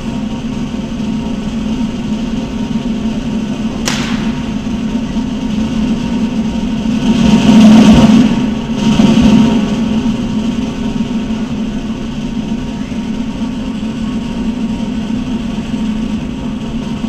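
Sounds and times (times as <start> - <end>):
sharp crack: 3.8 - 5.2.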